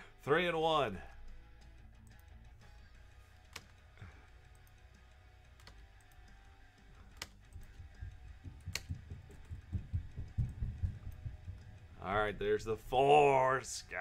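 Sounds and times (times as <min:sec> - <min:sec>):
computer mouse clicks: 0:08.6 - 0:09.5.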